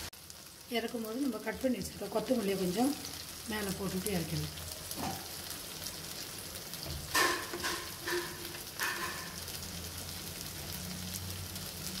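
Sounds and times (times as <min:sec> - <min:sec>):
gravy bubbling and sizzling: 0:00.0 - 0:12.0.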